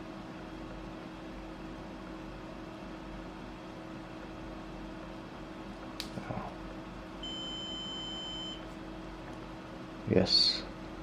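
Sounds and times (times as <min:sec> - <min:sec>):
high multimeter beep: 0:07.2 - 0:08.6.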